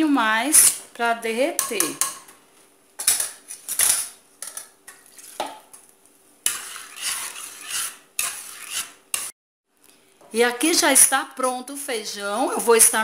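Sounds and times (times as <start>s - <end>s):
metal spoon scraping a pot: 6.4s - 9.3s.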